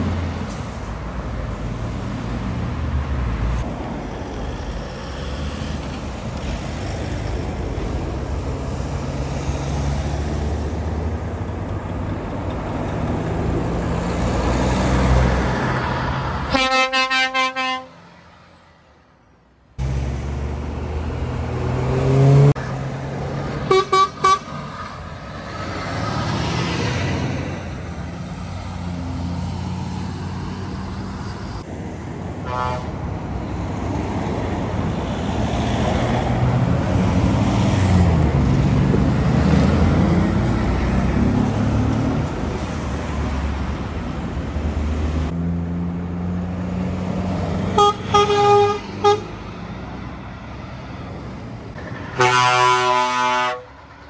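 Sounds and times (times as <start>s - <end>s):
truck diesel engines rumbling: 0.0s - 54.0s
horn toots: 16.5s - 18.0s, 23.6s - 24.6s, 32.4s - 32.9s, 47.7s - 49.4s, 52.1s - 53.8s.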